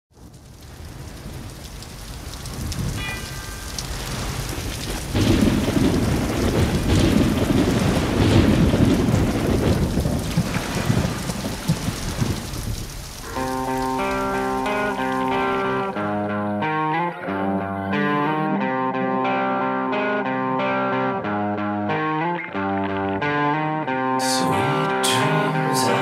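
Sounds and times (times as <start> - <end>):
steady rain: 0.1 - 16.0, 24.2 - 26.0
thunder rumble: 0.1 - 16.0.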